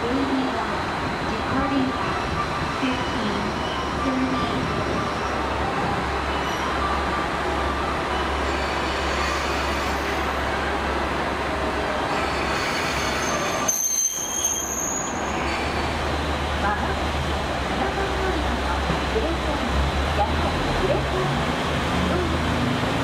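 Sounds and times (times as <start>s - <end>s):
diesel railcar rumbling: 0.0s - 23.0s
high brake squeal: 6.3s - 7.1s, 8.1s - 10.3s, 12.1s - 16.0s.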